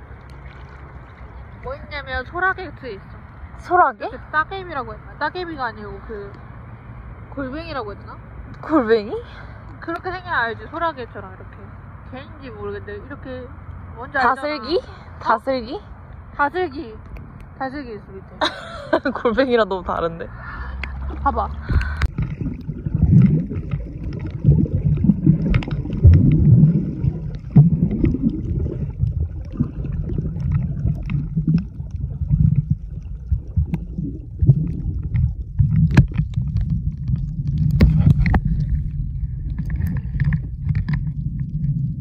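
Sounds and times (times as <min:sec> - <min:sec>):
underwater clicks and gurgles: 0:00.0 - 0:02.0, 0:20.6 - 0:42.0
underwater rumble of moving water: 0:00.0 - 0:03.9, 0:20.2 - 0:42.0.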